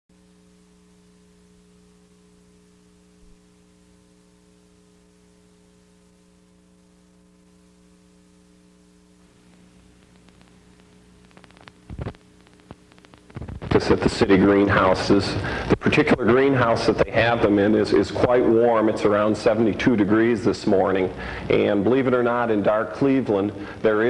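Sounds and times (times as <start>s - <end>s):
electrical mains hum: 0.1s - 24.0s
tape hiss: 0.1s - 24.0s
faint clicks: 9.5s - 13.8s.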